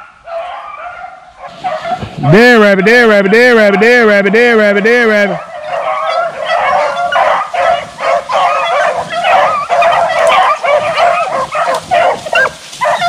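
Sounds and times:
hounds baying: 0.0 - 2.4, 5.2 - 13.0.

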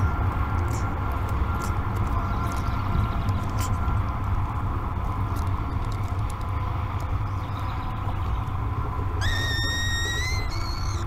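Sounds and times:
steady low rumble: 0.0 - 11.0
falcon wailing call: 9.2 - 11.0.

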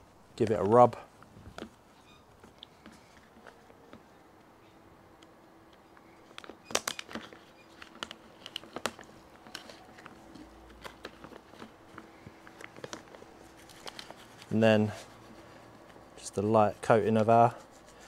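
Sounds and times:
faint steady hum: 0.0 - 18.0
pouch crinkling: 6.4 - 16.0.

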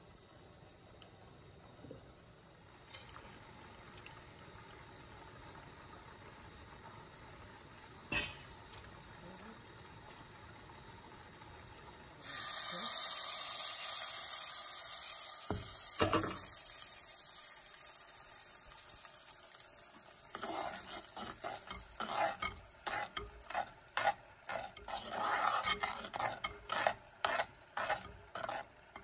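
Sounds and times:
oil sizzling: 1.3 - 29.0
metal spoon scraping clay pot: 20.3 - 29.0.

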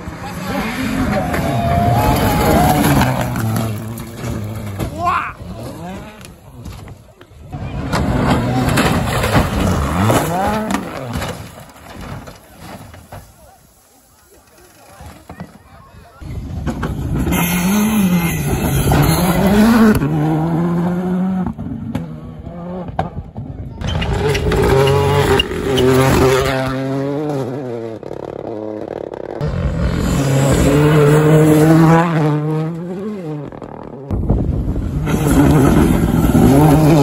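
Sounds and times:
rally cars revving past: 17.2 - 23.1, 29.4 - 34.1, 34.8 - 37.0.

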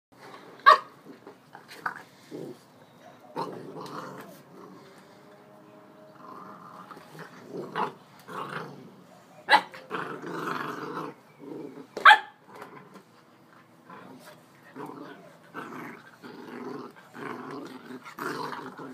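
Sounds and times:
puppy growling: 1.0 - 5.2, 6.1 - 18.9
puppy yapping: 9.4 - 10.0, 12.0 - 12.4.

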